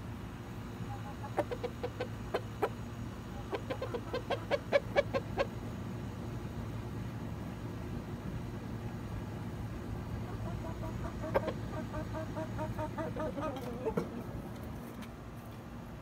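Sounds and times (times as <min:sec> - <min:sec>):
steady low hum: 0:00.0 - 0:16.0
hen clucking: 0:00.8 - 0:05.6, 0:10.0 - 0:14.5.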